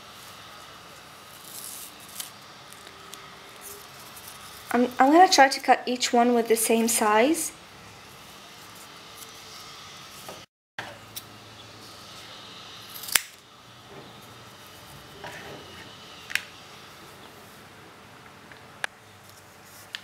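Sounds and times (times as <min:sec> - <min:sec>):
scissors snipping tape: 0:13.0 - 0:13.4.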